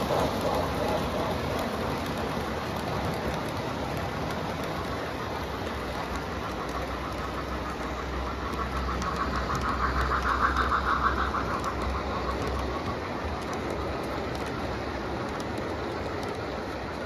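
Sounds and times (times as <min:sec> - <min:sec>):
locomotive deep rumble: 0:00.0 - 0:17.0
model train wheels rumbling: 0:00.0 - 0:17.0.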